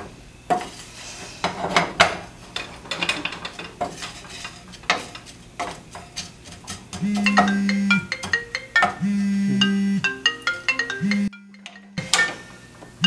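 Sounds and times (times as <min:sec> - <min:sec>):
dishes and cutlery clattering: 0:01.4 - 0:07.4, 0:11.6 - 0:12.6.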